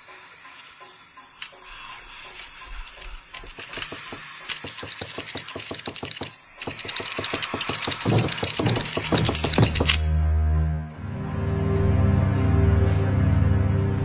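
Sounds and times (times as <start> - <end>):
rapid mechanical ticking: 0.5 - 10.0.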